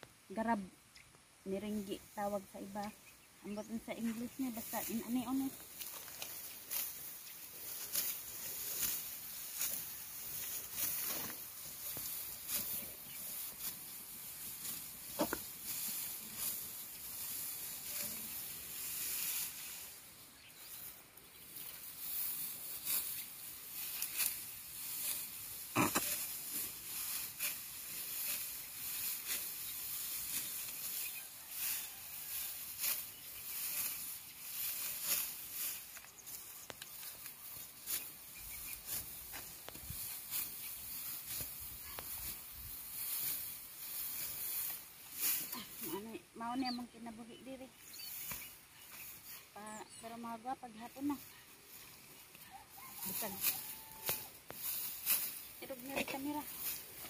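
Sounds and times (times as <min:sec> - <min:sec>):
rice stalks rustling: 0:01.6 - 0:57.0
sickle slicing stalks: 0:04.6 - 0:19.8, 0:21.9 - 0:45.8, 0:48.1 - 0:49.4, 0:53.0 - 0:57.0.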